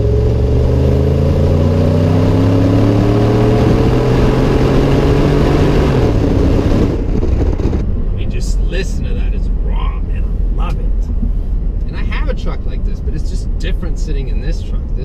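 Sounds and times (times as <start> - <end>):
engine exhaust accelerating: 0.0 - 15.0
tyre and wind rush: 3.5 - 8.2.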